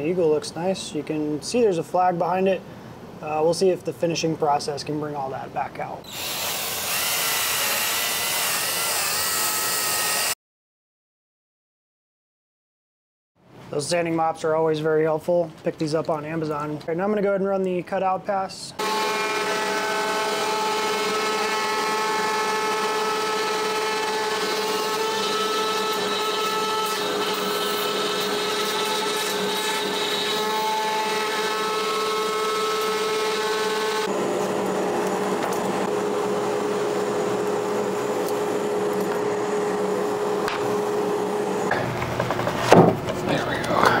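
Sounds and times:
router spindle whine: 18.8 - 41.6
end mill cutting wood: 18.8 - 41.9.

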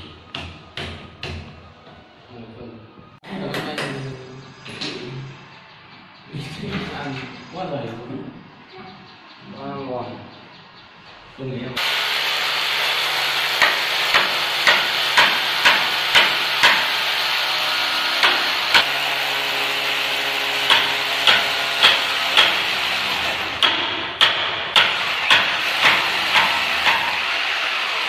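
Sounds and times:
electric drill grinding: 11.8 - 23.6, 24.9 - 28.0
sharp knocks: 13.6 - 17.0, 20.6 - 22.7, 23.6 - 27.2.

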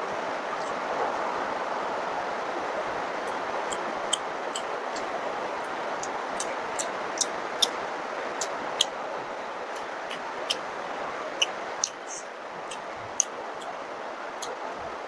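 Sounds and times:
heavy rain falling: 0.0 - 15.0
mouth chewing clicks and smacks: 6.0 - 7.8, 8.4 - 8.9, 11.4 - 12.1, 12.7 - 13.7.

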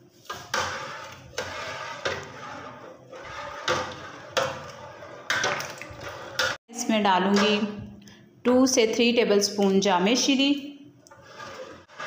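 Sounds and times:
ladle stirring liquid in pot: 0.0 - 6.6, 11.0 - 12.0.

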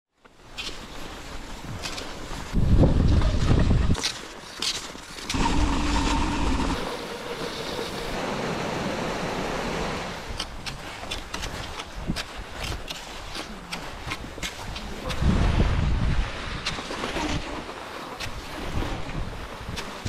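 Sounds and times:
skis gliding on snow: 0.1 - 20.0
ski poles clicking in snow: 0.2 - 2.6, 3.9 - 8.0, 10.3 - 15.2, 16.5 - 18.9
wind buffeting microphone: 1.6 - 4.1, 13.8 - 17.5.

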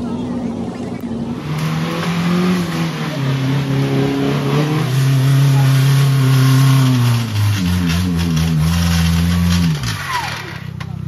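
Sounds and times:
off-road vehicle engine running hard: 0.0 - 11.0.

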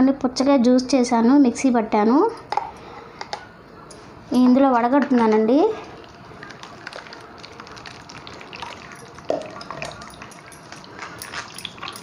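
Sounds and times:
juice dripping into bowl: 5.8 - 12.0
juice pouring into strainer: 5.8 - 12.0.

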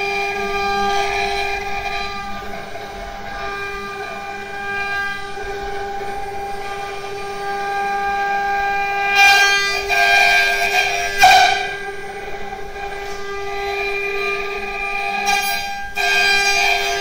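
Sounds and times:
bit carving wood: 0.0 - 17.0
router spindle whining: 0.0 - 17.0.

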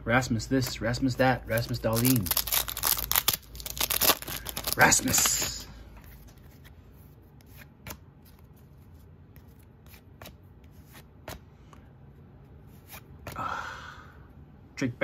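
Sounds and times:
cards being flipped: 1.5 - 11.9.

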